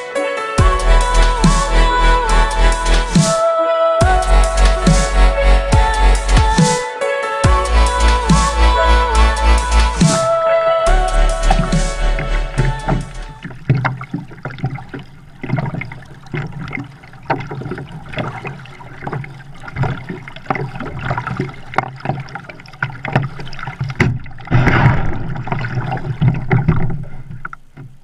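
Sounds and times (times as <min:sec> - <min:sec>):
paddle water splashing and dripping: 0:09.8 - 0:28.0
knocks against plastic hull: 0:22.8 - 0:28.0.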